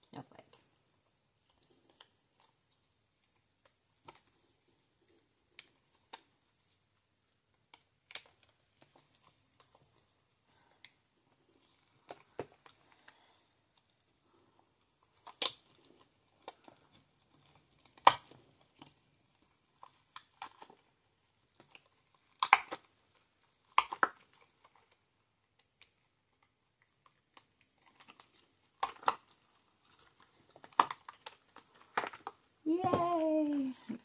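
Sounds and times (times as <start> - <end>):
soft rubbery rustling: 0.0 - 34.0
silicone mold clicks and snaps: 7.7 - 9.0.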